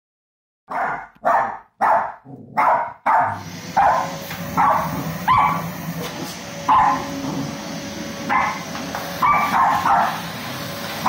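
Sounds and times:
dog barking: 0.7s - 5.7s, 6.7s - 7.2s, 8.3s - 8.6s, 9.2s - 10.3s
vacuum cleaner running: 3.2s - 11.0s.

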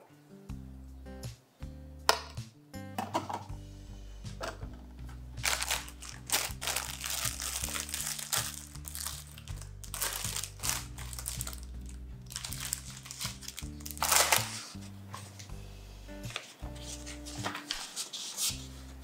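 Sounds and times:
soft background music: 0.0s - 19.0s
plastic bag crinkling: 5.4s - 14.9s.

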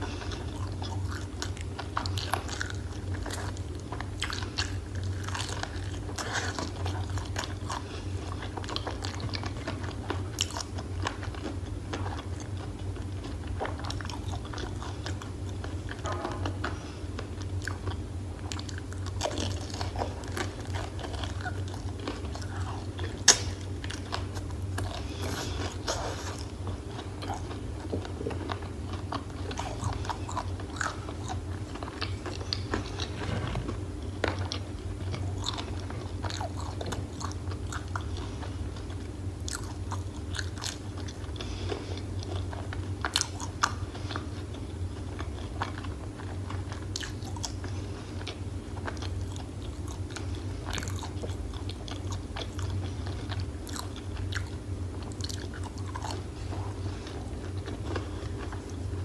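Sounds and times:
crunching fried chicken: 0.0s - 59.0s
low steady hum: 0.0s - 59.0s.

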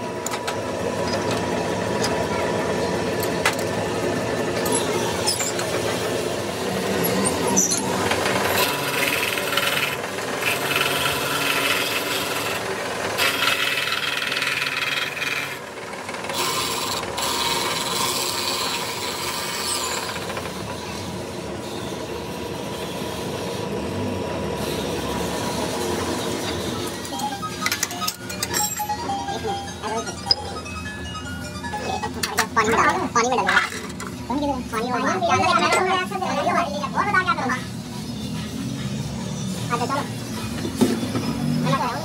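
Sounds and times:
lathe motor hum: 0.0s - 27.8s.

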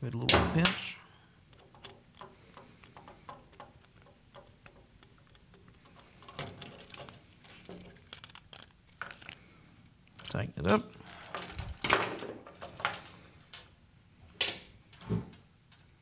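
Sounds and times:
small clicks and metallic ticks: 1.5s - 11.9s, 15.7s - 16.0s.

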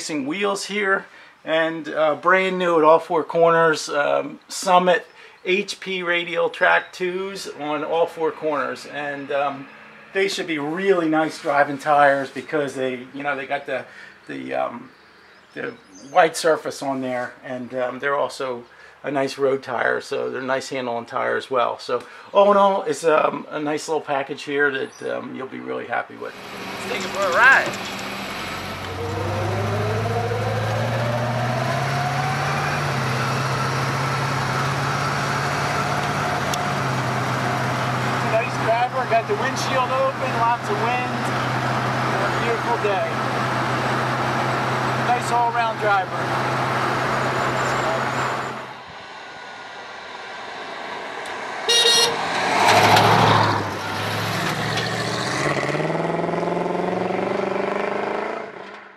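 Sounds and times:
wind and road noise: 7.1s - 12.2s, 26.3s - 58.9s
pickup truck engine pulling away: 26.4s - 48.8s, 52.2s - 58.5s
pickup truck horn toot: 51.7s - 52.2s.

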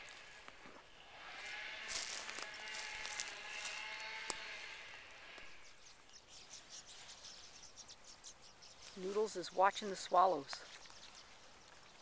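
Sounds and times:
footsteps on dirt trail: 0.0s - 5.6s
distant motor hum: 0.0s - 8.5s.

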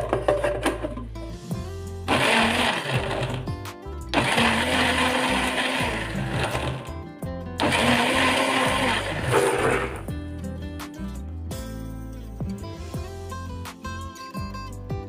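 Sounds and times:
blender motor pureeing fruit: 2.1s - 3.5s, 4.1s - 6.9s, 7.6s - 10.1s.

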